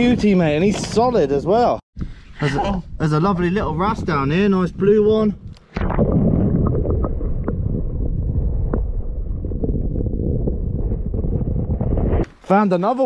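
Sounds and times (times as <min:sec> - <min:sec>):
muffled underwater rumble: 0:03.4 - 0:12.2.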